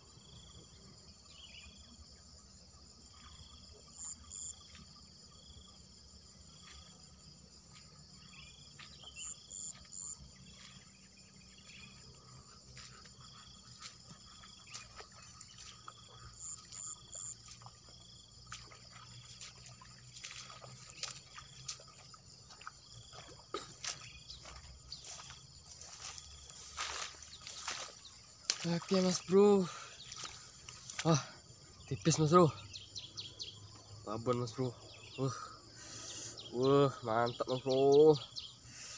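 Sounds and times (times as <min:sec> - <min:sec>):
crickets chirping: 0:00.0 - 0:38.9
clicks and rustles in grass: 0:18.4 - 0:29.4, 0:30.0 - 0:31.2.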